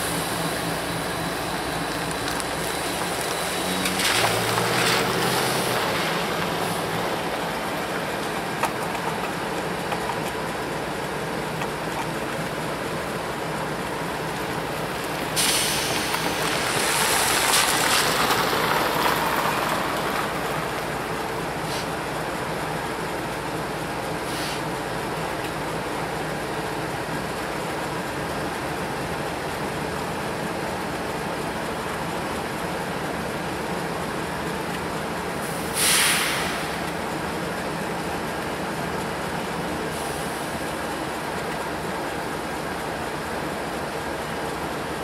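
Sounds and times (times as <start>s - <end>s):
pickup truck engine passing: 0.0s - 11.9s, 12.7s - 21.7s
freight train rumble: 0.0s - 45.0s
hissing rush of noise: 14.7s - 19.4s.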